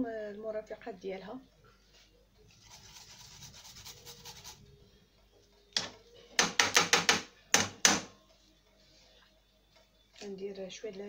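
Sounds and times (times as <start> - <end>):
grater rasping on garlic: 2.6 - 4.6.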